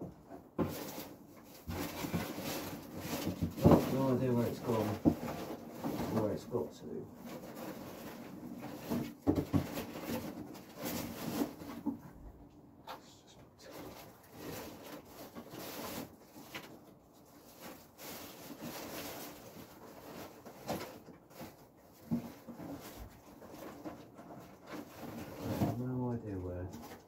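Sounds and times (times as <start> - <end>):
soft handling noises: 0.1 - 27.0.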